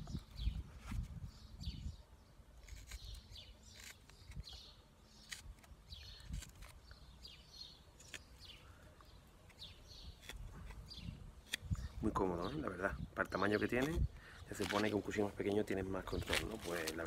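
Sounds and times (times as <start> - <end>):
knife scraping wood: 2.6 - 6.8, 7.9 - 8.5, 9.4 - 11.9, 13.6 - 15.3
blade clicking on wood: 2.6 - 6.9.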